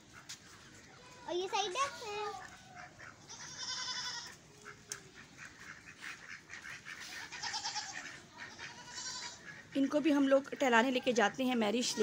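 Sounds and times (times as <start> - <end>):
goat bleating: 3.2 - 4.4, 7.0 - 9.6, 11.8 - 12.0.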